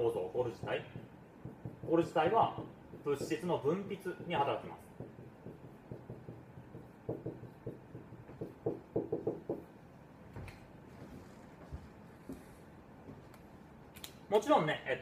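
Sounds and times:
marker writing on whiteboard: 0.0s - 9.7s.

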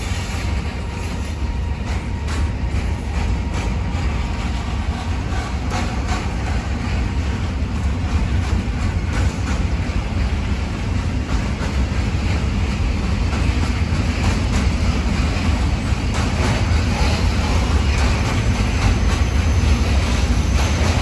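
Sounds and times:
train wheels rumbling on rail: 0.0s - 21.0s
wheels clicking over rail joints: 0.0s - 21.0s.

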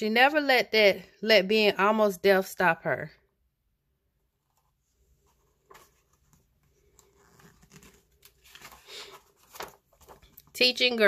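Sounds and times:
book pages turning: 4.3s - 10.5s.

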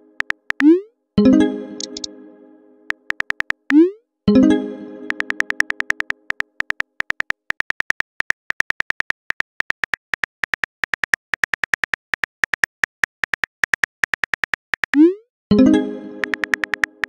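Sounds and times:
phone keyboard tap clicks: 2.9s - 3.6s, 5.1s - 14.9s, 16.2s - 17.0s.

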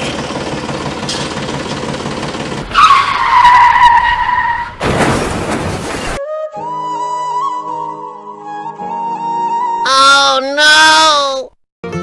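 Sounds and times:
miniature tractor rattling rumble: 0.0s - 2.7s.

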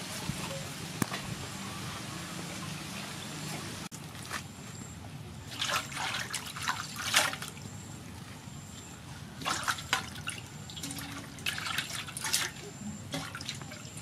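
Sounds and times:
water trickling through basket: 5.4s - 7.7s, 9.4s - 14.0s
water splashing over greens: 9.4s - 14.0s.

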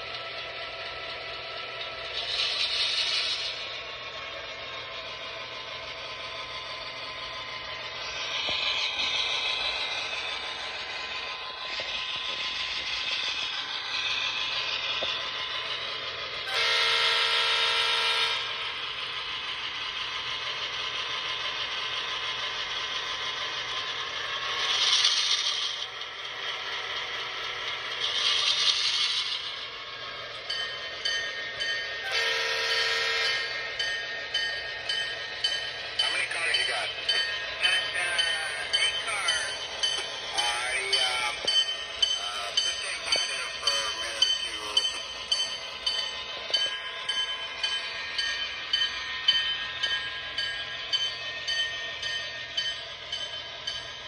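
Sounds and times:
horn blasts: 16.5s - 18.4s
regular ticking: 33.1s - 54.0s.

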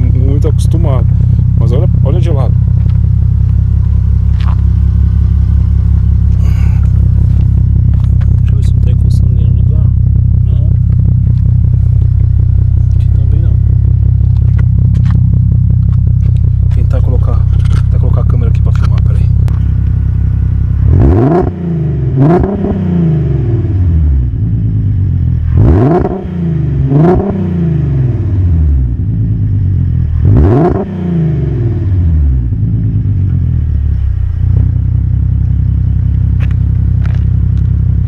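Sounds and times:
car engine revving and idling: 0.0s - 38.0s.

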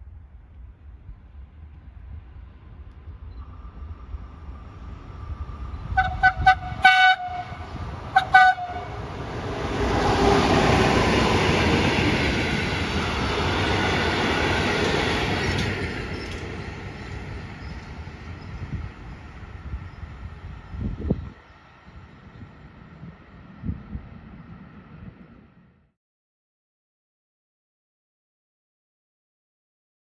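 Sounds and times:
train horn short toots: 6.0s - 9.0s
train wheels clattering on rails: 10.2s - 19.2s.

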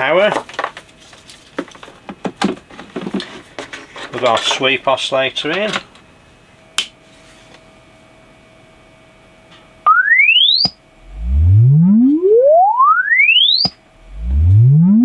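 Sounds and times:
sine wave sweep tone: 9.8s - 15.0s.

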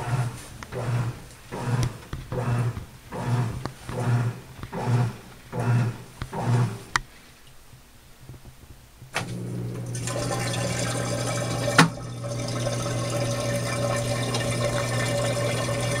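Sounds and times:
water filling tub: 9.2s - 16.0s
washing machine click: 11.7s - 12.0s.

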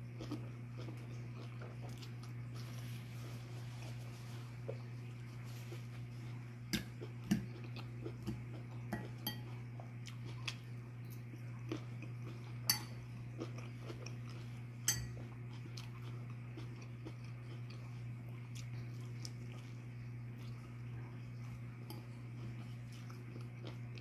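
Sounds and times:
steady low hum: 0.0s - 24.0s
chewing: 0.1s - 24.0s
fork clinking on ceramic bowl: 8.9s - 9.6s, 12.7s - 13.1s, 14.9s - 15.2s.

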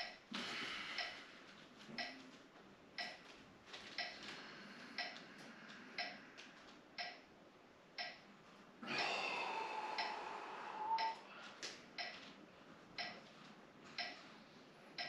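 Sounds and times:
metronome ticking: 0.0s - 0.3s, 1.9s - 2.3s, 3.0s - 3.2s, 5.0s - 5.2s, 6.0s - 6.2s, 7.0s - 7.3s, 8.0s - 8.2s, 11.0s - 11.2s, 13.0s - 13.2s, 14.0s - 14.2s
person exhaling with strain: 8.8s - 11.1s.

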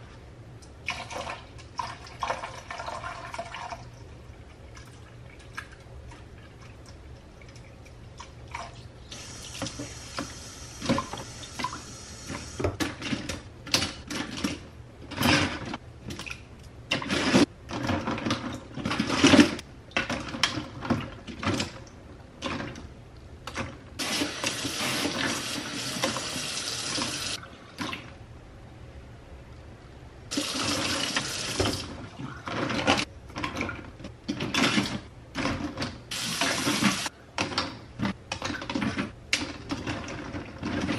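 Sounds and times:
plastic items clattering: 30.5s - 40.9s.

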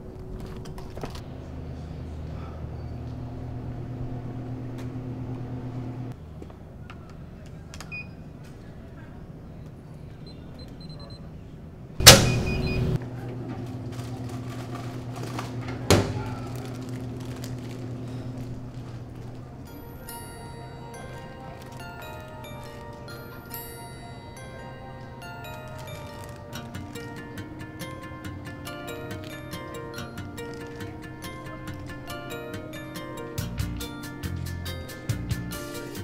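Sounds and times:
steady low hum: 0.0s - 7.4s
keypad beeps: 10.2s - 11.3s, 12.0s - 13.0s
vending machine clunk: 12.0s - 17.2s.

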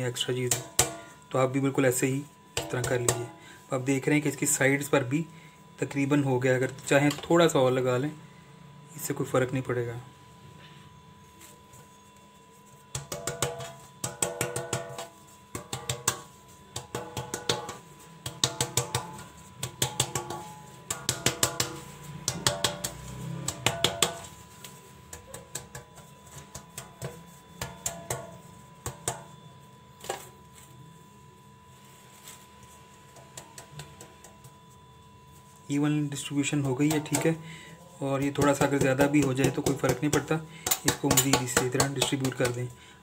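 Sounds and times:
cake pan tapping: 2.6s - 3.4s, 12.9s - 24.4s, 36.6s - 37.4s, 38.2s - 42.7s.

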